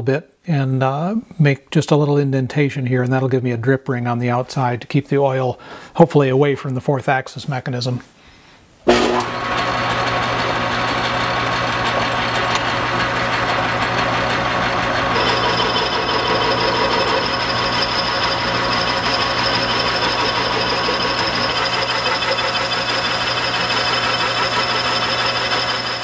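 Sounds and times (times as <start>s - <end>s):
high steady cutting whine: 8.9s - 26.0s
metal lathe humming: 8.9s - 26.0s.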